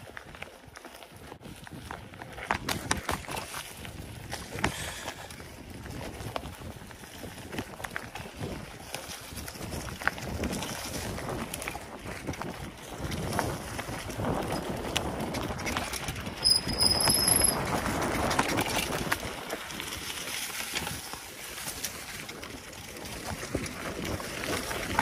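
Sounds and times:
bike clicks and rattles: 0.0s - 25.0s
bike tyres rolling on dirt: 0.0s - 25.0s
high-pitched brake squeal: 16.4s - 17.6s.

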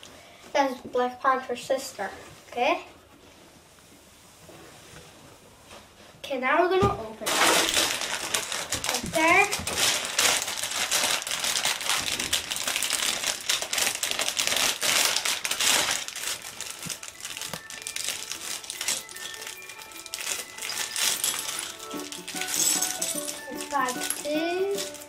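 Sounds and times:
plastic bag crinkling: 7.2s - 25.0s
faint music: 14.0s - 25.0s.

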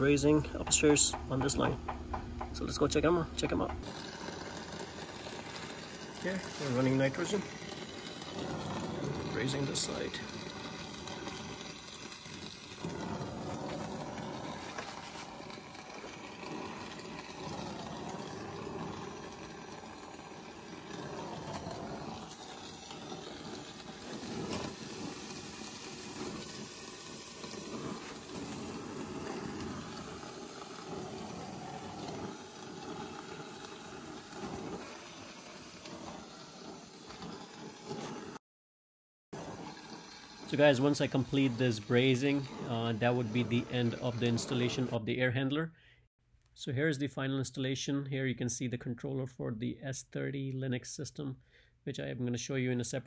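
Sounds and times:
torch flame hissing: 3.8s - 38.4s, 39.4s - 45.0s.

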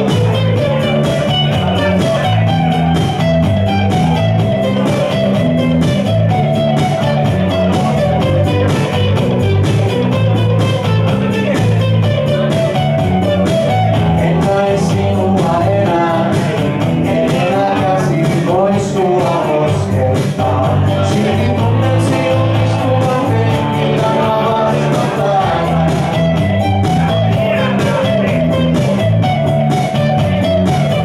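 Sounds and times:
electric bass notes: 0.0s - 31.0s
electric guitar: 0.0s - 31.0s
man singing: 11.2s - 29.1s.

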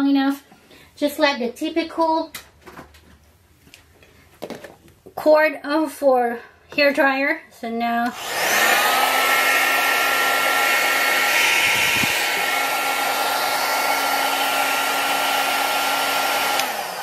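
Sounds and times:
hair dryer blowing: 8.1s - 17.0s.

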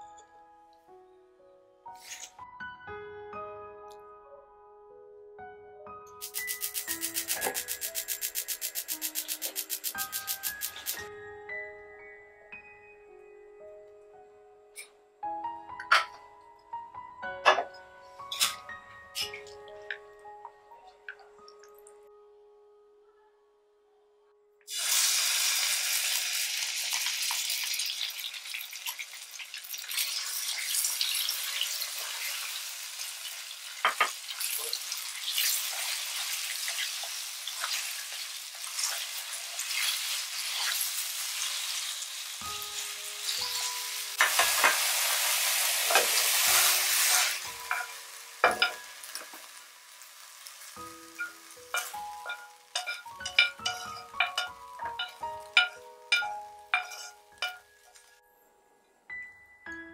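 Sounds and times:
meat sizzling in hot oil: 6.2s - 11.0s, 24.7s - 58.0s.

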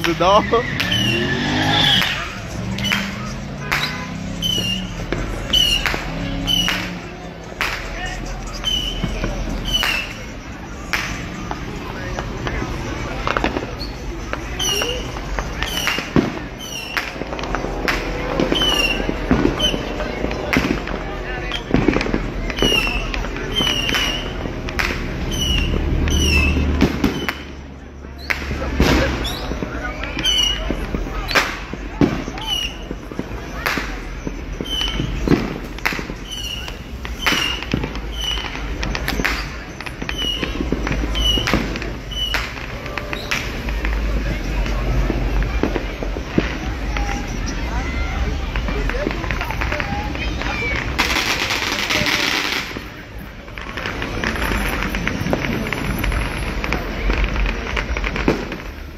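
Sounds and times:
fireworks bangs and crackles: 0.0s - 58.9s
fireworks whistles: 0.0s - 58.9s.

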